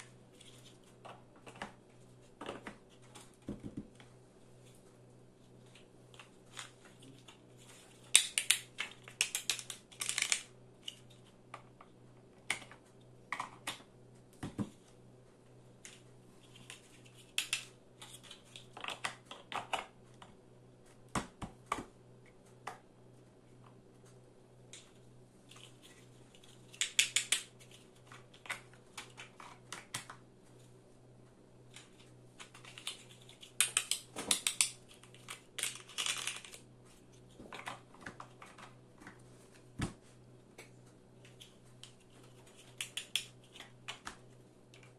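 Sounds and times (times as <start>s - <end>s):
faint low hum: 0.0s - 44.9s
plastic blocks clicking: 8.1s - 11.0s, 26.7s - 27.5s, 31.8s - 36.6s, 42.7s - 44.2s.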